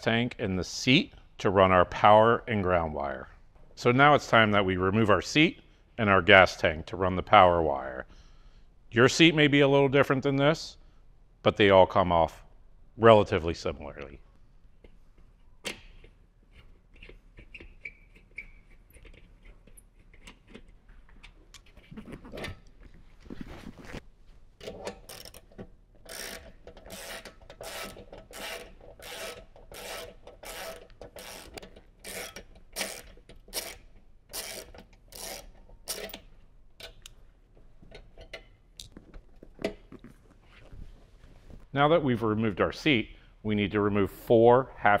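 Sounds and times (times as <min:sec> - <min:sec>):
screwdriver turning strokes: 0:26.0 - 0:36.2.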